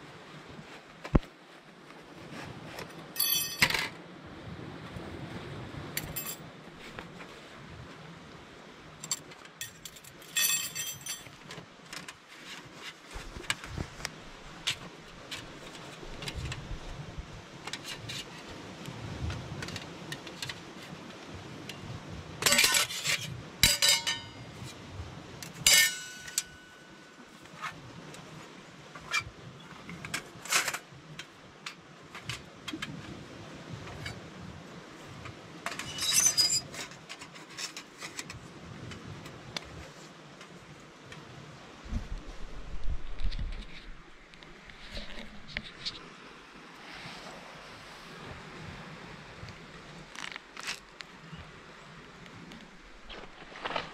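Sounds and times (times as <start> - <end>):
ringing metal clank: 3.2 - 3.7, 9.6 - 11.3, 23.6 - 24.4, 25.6 - 27.1
thin metal panels clinking: 3.2 - 3.8, 9.6 - 11.3, 22.4 - 24.4, 25.6 - 27.0.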